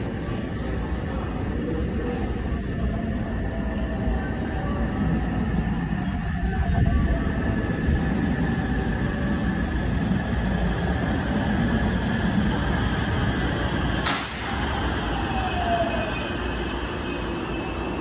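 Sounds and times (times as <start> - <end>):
train wheels rumbling on rail: 4.2 - 18.0.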